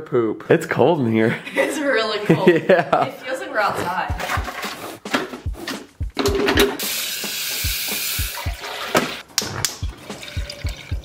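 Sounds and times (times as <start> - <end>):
water pouring from carafe: 9.8 - 11.0.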